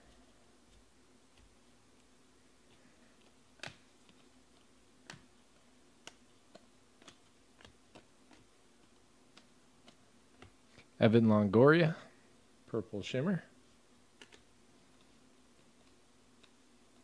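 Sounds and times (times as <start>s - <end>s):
cards being flipped: 0.7s - 10.9s, 14.1s - 17.0s.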